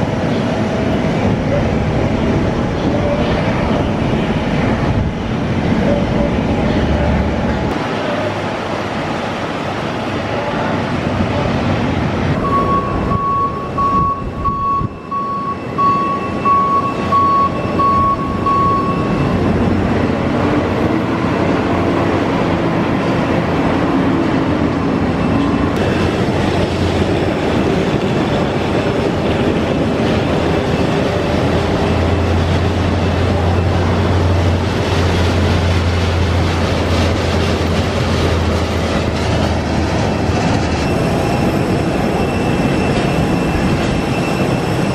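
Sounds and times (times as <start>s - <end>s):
jet engines roaring: 0.0s - 44.9s
vehicle warning beeper: 12.4s - 19.6s.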